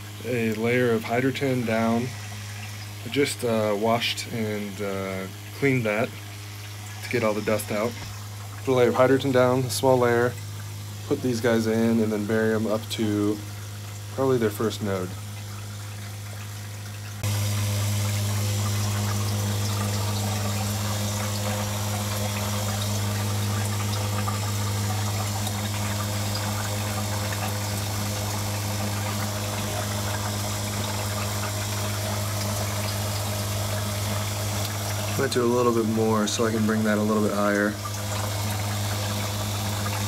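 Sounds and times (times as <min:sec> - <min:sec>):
water hissing through pipes: 0:00.0 - 0:40.0
water pump humming: 0:00.0 - 0:40.0.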